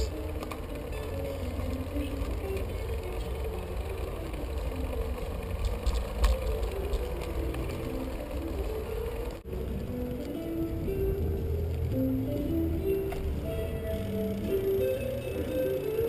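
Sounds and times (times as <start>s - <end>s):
bicycle rolling over paving: 0.0s - 16.0s
faint music: 0.0s - 16.0s.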